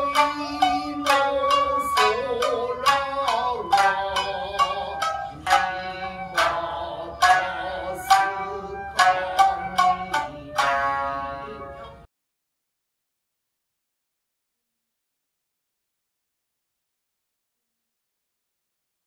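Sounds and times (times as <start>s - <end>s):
bamboo flute long notes: 0.0s - 12.1s
shamisen strokes: 0.0s - 12.1s.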